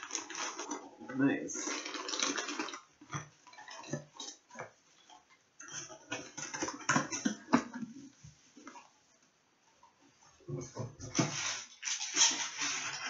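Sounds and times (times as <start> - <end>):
cardboard packaging rustling: 0.0 - 1.0, 11.0 - 13.0.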